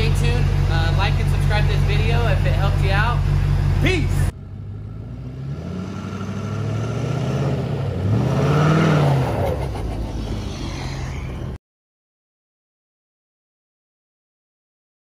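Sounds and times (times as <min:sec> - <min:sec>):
diesel truck accelerating past: 0:00.0 - 0:11.6.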